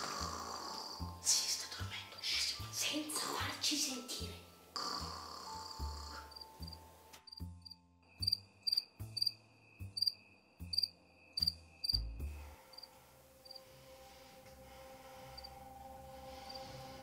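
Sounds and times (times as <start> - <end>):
crickets chirping: 5.4 - 17.0.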